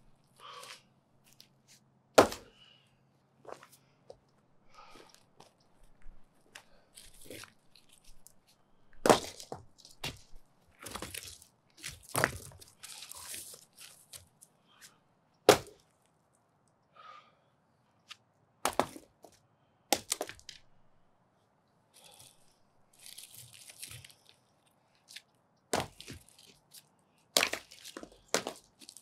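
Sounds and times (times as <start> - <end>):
sledgehammer hitting concrete: 2.2 - 2.5, 9.0 - 9.6, 15.5 - 15.8, 18.6 - 19.1, 25.8 - 26.2, 28.3 - 28.6.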